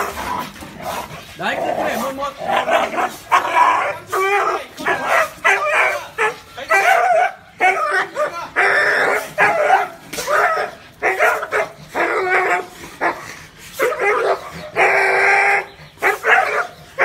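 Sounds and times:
dog barking: 0:02.6 - 0:13.2, 0:16.0 - 0:17.0.

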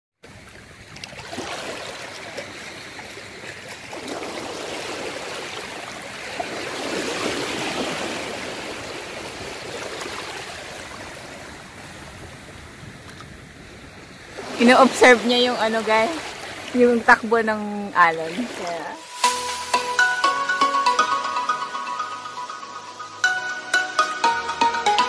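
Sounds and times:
small waves lapping at shoreline: 0:00.2 - 0:19.8.

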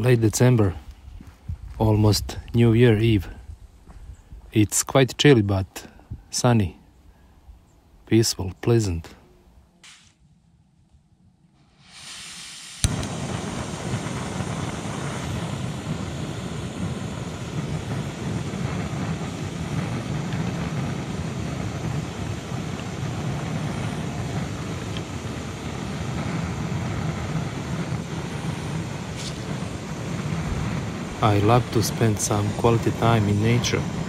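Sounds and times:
gas camping stove burner rushing: 0:11.5 - 0:34.0.

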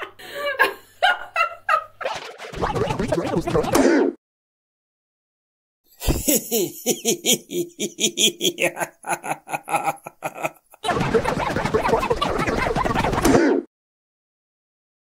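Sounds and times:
person laughing: 0:00.0 - 0:03.8, 0:06.0 - 0:13.3.

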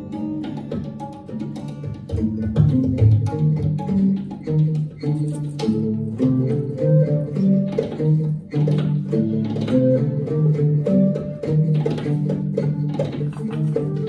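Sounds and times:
slide guitar sliding notes: 0:00.0 - 0:14.0
tabla strokes: 0:00.0 - 0:14.0
shakuhachi flute: 0:04.0 - 0:14.0.

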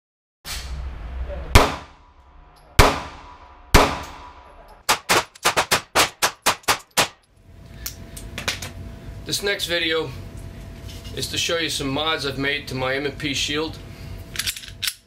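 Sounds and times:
pistol shots indoors: 0:01.6 - 0:02.0, 0:02.8 - 0:07.2.

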